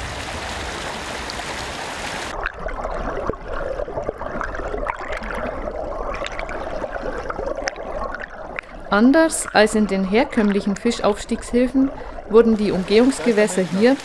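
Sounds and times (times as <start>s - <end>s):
underwater stream gurgling: 0.0s - 14.0s
small underwater clicks: 7.2s - 8.7s
fast-flowing stream rushing: 12.7s - 14.0s.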